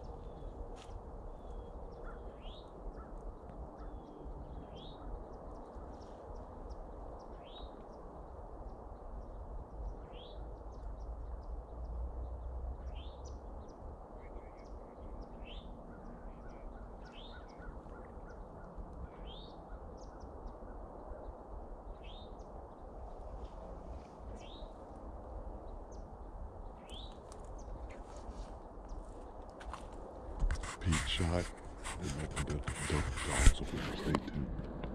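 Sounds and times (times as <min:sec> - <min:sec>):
small bird calling: 0:01.4 - 0:08.0, 0:12.8 - 0:21.3
wind on microphone: 0:30.0 - 0:34.9.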